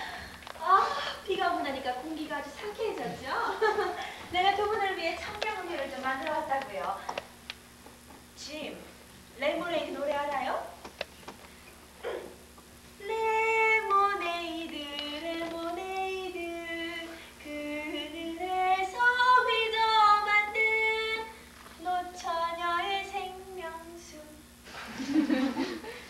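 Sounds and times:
woman singing: 13.0 - 24.4.

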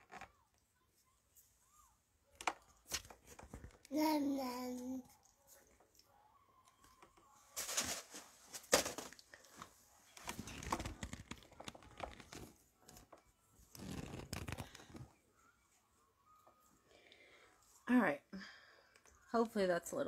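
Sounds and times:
rustling and crinkling handling: 7.0 - 15.2.

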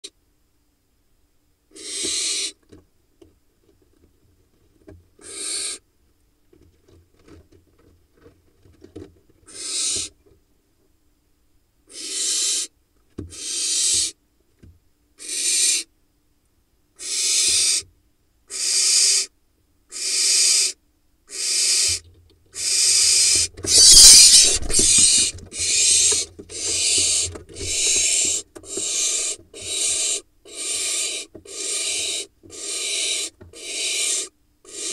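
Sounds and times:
owl chick hissing: 1.7 - 2.6, 5.2 - 5.8, 9.5 - 10.1, 11.9 - 12.7, 13.3 - 14.2, 15.2 - 15.9, 17.0 - 17.8, 18.5 - 19.3, 19.9 - 22.0, 22.6 - 34.9
bird scuffle in nest box: 22.6 - 32.7
wingbeats: 22.6 - 34.9.

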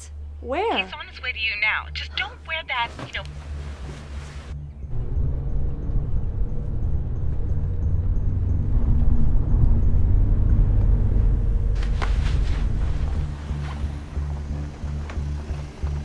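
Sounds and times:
road rumble inside car: 1.3 - 16.0
soft music drone: 3.3 - 16.0.

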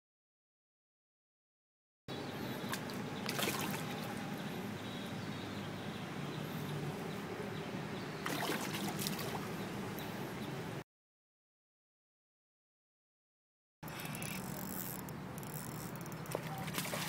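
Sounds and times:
steady outdoor hiss: 2.1 - 10.8, 13.8 - 17.0
fish splashing in water: 2.6 - 4.2, 8.2 - 9.6, 16.1 - 17.0.

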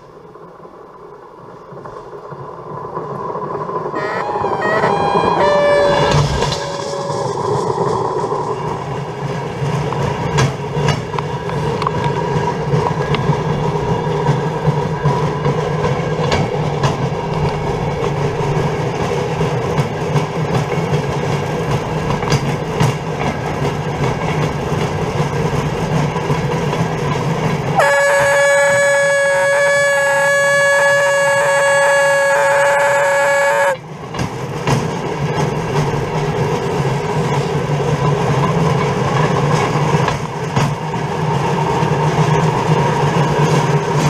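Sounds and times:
wheels rumbling on railway track: 0.0 - 44.0
steady tones: 3.3 - 10.4.

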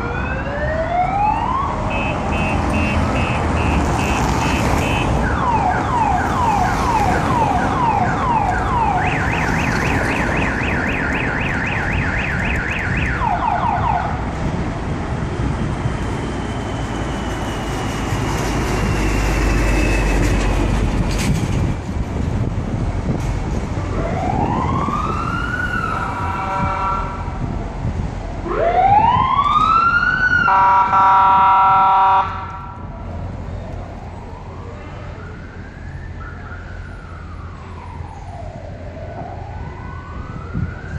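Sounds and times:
police siren: 0.0 - 14.3, 23.8 - 27.4, 28.3 - 40.9
street traffic: 0.0 - 40.9
car alarm tones: 1.9 - 13.5.

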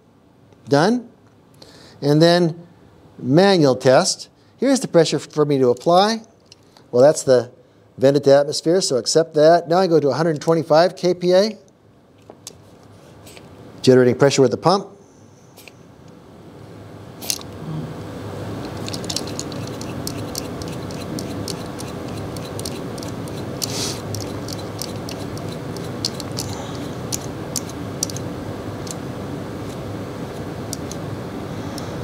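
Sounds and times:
steady background noise: 0.0 - 32.0
hand pump clicks: 18.7 - 28.2
short air hiss: 23.7 - 24.1.

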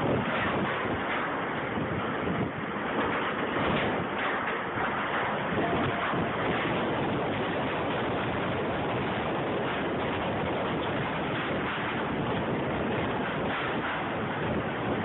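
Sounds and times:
strong wind on microphone: 0.0 - 15.0.

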